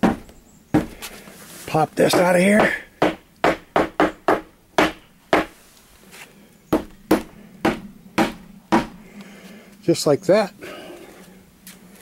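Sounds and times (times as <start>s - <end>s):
sledgehammer knocking wooden post: 0.0s - 1.0s, 2.0s - 5.6s, 6.7s - 9.0s.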